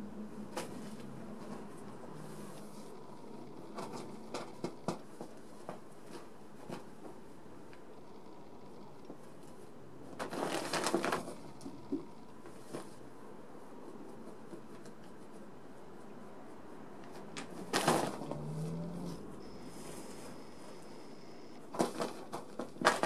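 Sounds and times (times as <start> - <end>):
newspaper rustling: 10.2 - 11.4.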